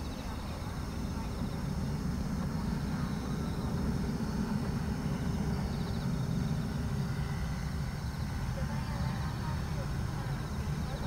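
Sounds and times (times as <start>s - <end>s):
jet engines rumbling overhead: 0.0s - 11.0s.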